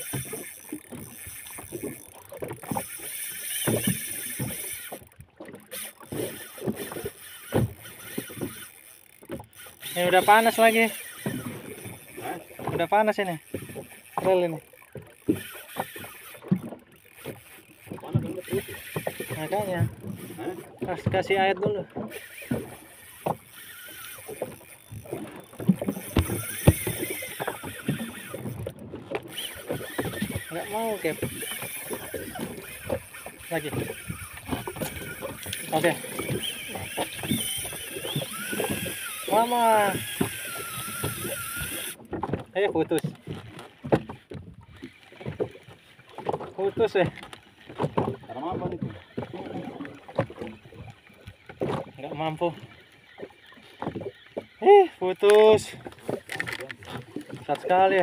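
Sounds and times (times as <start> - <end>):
fishing reel drag hissing: 0.0 - 20.8, 22.1 - 42.0
water slapping boat hull: 0.0 - 58.0
wind: 0.0 - 58.0.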